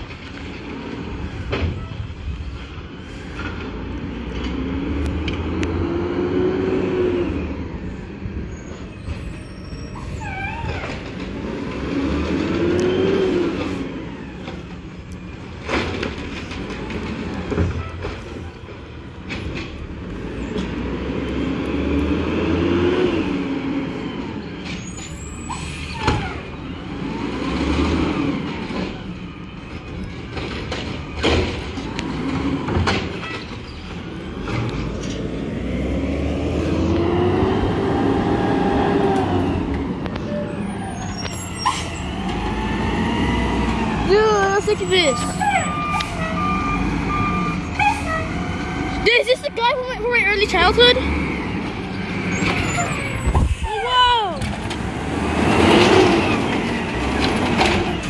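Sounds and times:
garbage truck diesel engine revving: 0:03.6 - 0:07.9, 0:11.0 - 0:14.7, 0:19.9 - 0:24.6, 0:26.0 - 0:29.3, 0:31.0 - 0:53.3, 0:54.5 - 0:58.0
brief squeal: 0:08.5 - 0:10.9, 0:24.7 - 0:26.4, 0:40.6 - 0:42.2, 0:52.3 - 0:54.3.

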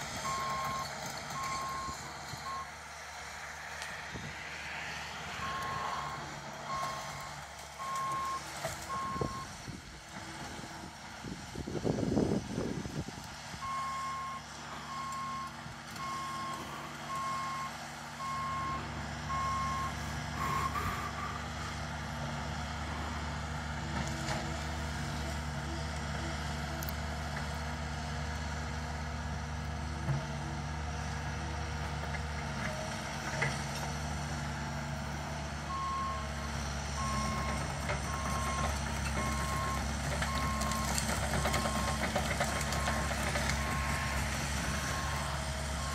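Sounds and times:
excavator engine running: 0:00.0 - 0:45.9
excavator travel alarm beeping: 0:00.2 - 0:02.8, 0:05.4 - 0:09.6, 0:13.6 - 0:21.2, 0:35.7 - 0:36.4, 0:37.0 - 0:45.9.

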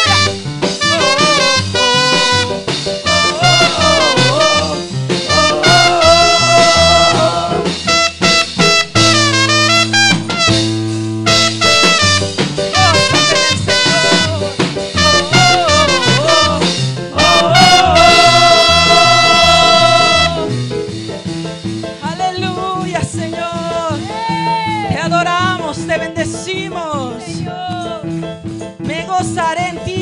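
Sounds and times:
trumpet melody: 0:00.0 - 0:20.7
band playing: 0:00.0 - 0:28.2.

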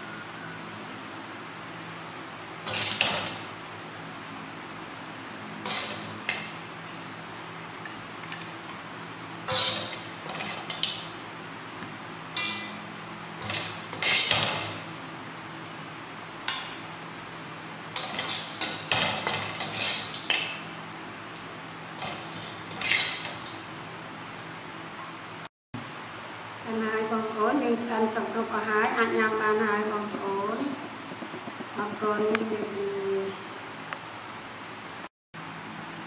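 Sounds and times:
spatula scraping a wok: 0:02.7 - 0:03.3, 0:05.6 - 0:06.4, 0:09.5 - 0:10.9, 0:12.3 - 0:12.8, 0:13.4 - 0:14.6, 0:18.0 - 0:20.4, 0:22.0 - 0:23.5.

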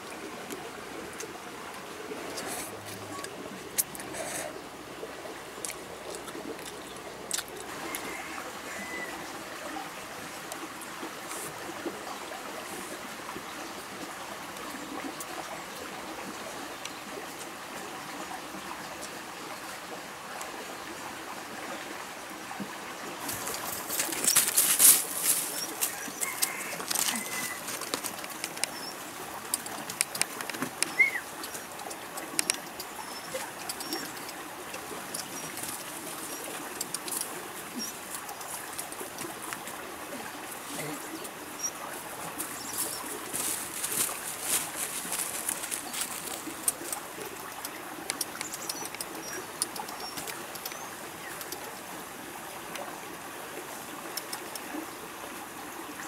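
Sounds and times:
stream water flowing: 0:00.0 - 0:56.0
sharp clicks and rustles: 0:23.3 - 0:28.8, 0:29.5 - 0:36.0
bird calling: 0:25.2 - 0:29.1, 0:30.4 - 0:31.7, 0:32.4 - 0:34.3.

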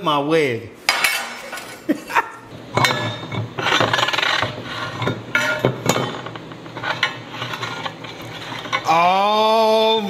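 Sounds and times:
metal gears clinking and scraping: 0:02.7 - 0:09.1.

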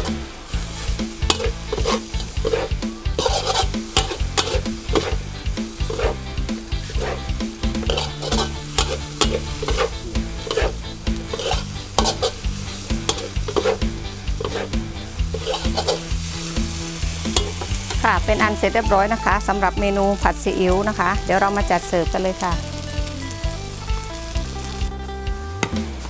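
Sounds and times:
metal spatula scraping a wok: 0:00.0 - 0:18.5
food sizzling: 0:00.0 - 0:26.0.

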